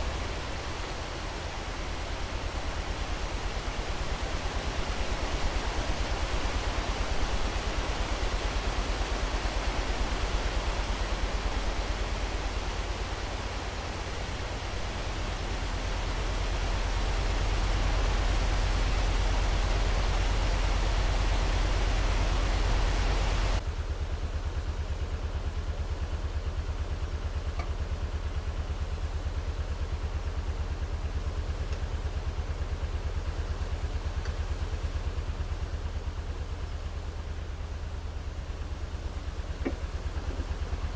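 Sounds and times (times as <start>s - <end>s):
diesel engine idling: 23.4s - 40.9s.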